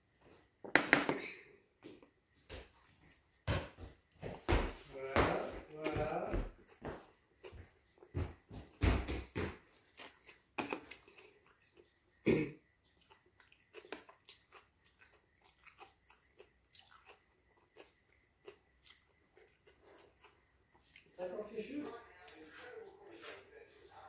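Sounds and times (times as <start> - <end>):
person chewing and crunching: 8.7 - 21.2.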